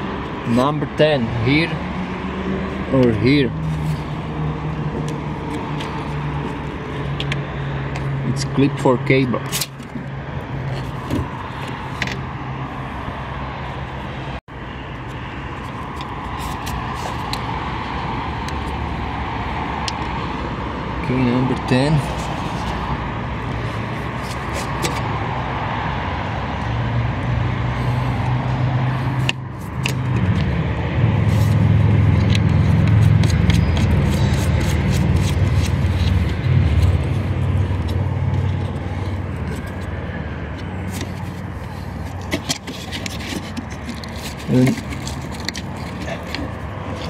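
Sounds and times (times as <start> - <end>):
low motor vehicle rumble: 9.6 - 47.0
plastic clicks and scrapes: 23.6 - 25.1, 31.3 - 47.0.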